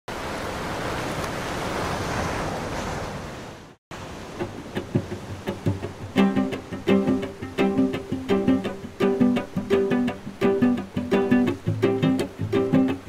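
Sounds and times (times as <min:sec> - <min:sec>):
steady rushing noise: 0:03.9 - 0:13.0
pizzicato string music: 0:04.3 - 0:13.0.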